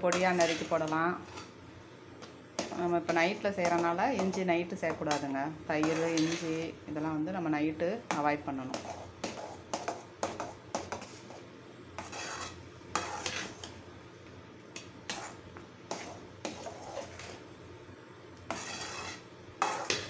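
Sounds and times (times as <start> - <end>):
ladle scraping pan: 0.1 - 1.5, 5.8 - 6.7, 12.0 - 13.8, 15.1 - 17.4, 18.5 - 20.0
ladle stirring thick food: 0.1 - 1.6, 2.5 - 6.7, 8.6 - 13.8, 14.7 - 17.5, 18.4 - 20.0.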